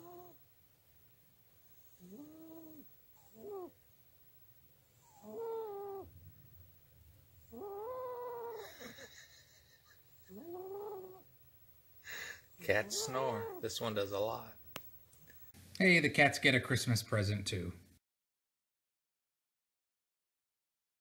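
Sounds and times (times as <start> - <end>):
cat snoring: 0.0 - 0.4, 1.6 - 3.8, 4.8 - 6.1, 7.4 - 8.9, 10.2 - 11.2, 12.6 - 13.7.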